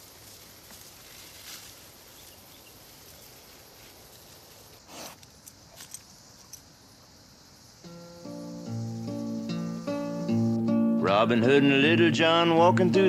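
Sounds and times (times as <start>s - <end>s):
footsteps on leaf litter: 0.0s - 4.8s
faint bush ambience hiss: 0.0s - 13.0s.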